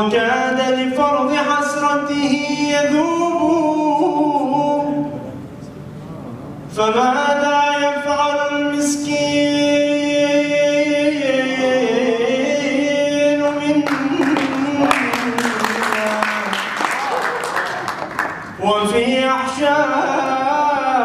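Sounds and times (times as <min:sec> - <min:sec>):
man singing unaccompanied: 0:00.0 - 0:05.2, 0:06.7 - 0:16.5, 0:18.5 - 0:21.0
audience applause: 0:13.8 - 0:18.6.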